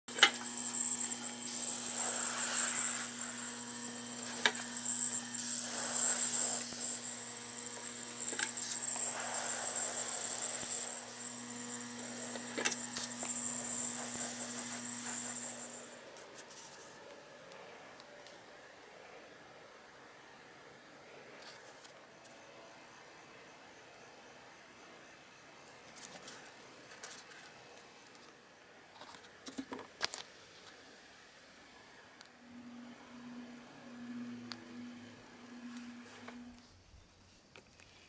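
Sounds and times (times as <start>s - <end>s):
airbrush spraying hiss: 0.1s - 16.1s
electric compressor hum: 0.1s - 16.1s.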